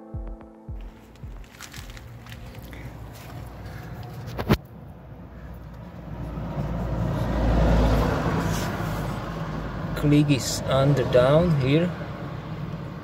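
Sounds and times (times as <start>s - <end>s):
low rumble: 0.7s - 8.2s
road vehicle passing: 0.9s - 13.0s.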